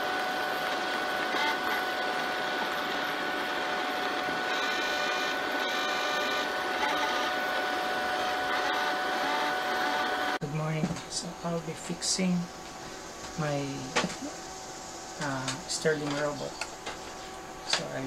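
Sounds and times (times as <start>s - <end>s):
high-pitched whirring: 0.0s - 10.4s
robot vacuum whirring: 0.1s - 10.4s.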